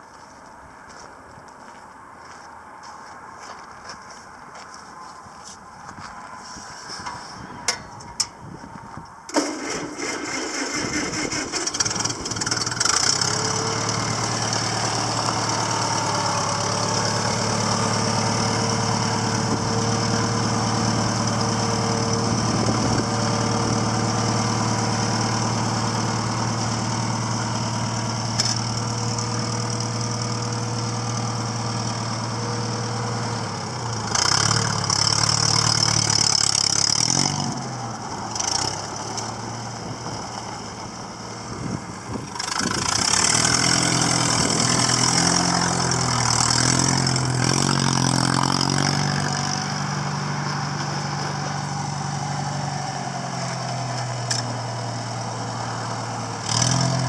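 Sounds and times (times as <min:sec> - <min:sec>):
tractor engine idling: 0:02.8 - 0:57.0
tractor starter cranking: 0:09.3 - 0:14.0, 0:42.3 - 0:45.5.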